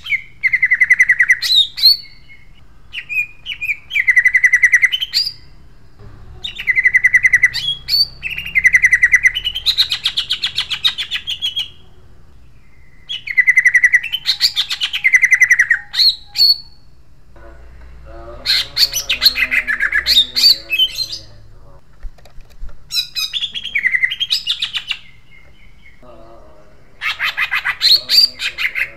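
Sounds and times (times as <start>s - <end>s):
squawky bird chatter: 0.0s - 16.9s, 17.6s - 21.8s, 22.9s - 28.9s
bird singing rolling trills: 0.0s - 21.8s, 22.9s - 28.9s.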